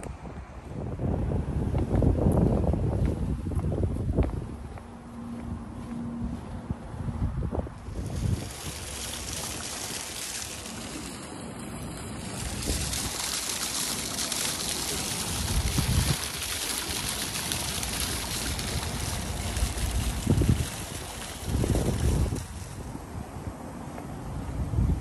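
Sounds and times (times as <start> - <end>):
wind buffeting microphone: 0.0 - 25.0
fountain water splashing: 7.8 - 25.0.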